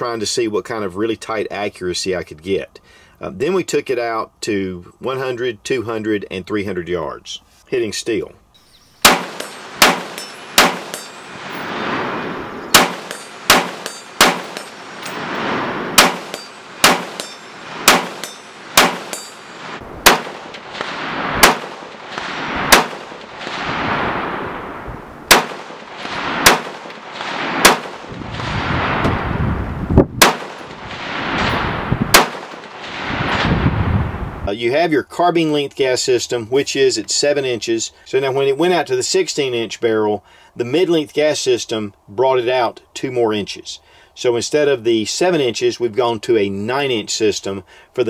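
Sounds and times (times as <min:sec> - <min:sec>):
rifle shots echoing: 0:09.0 - 0:29.0, 0:30.2 - 0:33.5
bullets clanging on steel plates: 0:09.1 - 0:11.4, 0:12.7 - 0:15.2, 0:16.0 - 0:20.7.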